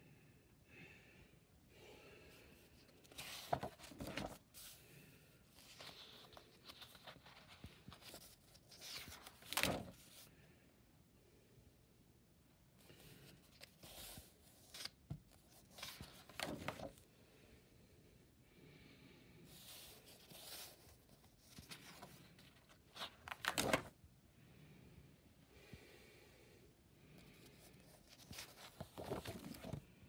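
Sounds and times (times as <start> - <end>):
paper pages turning: 3.0 - 4.8, 5.5 - 10.2, 13.3 - 17.0, 19.5 - 24.0, 27.4 - 29.8.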